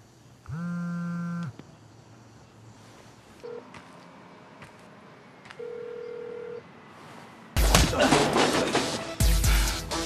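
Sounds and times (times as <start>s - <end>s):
telephone ringback tone: 5.6s - 6.6s.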